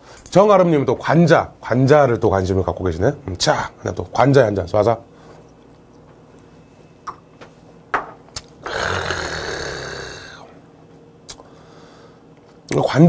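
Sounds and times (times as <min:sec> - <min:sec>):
man exhaling breathily: 0:08.6 - 0:10.5.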